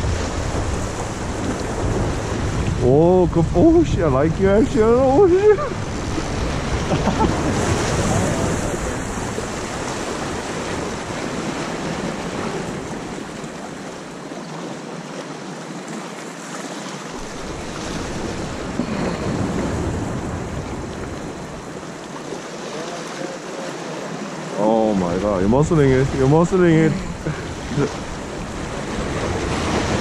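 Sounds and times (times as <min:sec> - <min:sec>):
wind rumbling on microphone: 0:00.0 - 0:14.0, 0:17.1 - 0:22.0, 0:25.1 - 0:30.0
surf washing against rocks: 0:00.0 - 0:30.0.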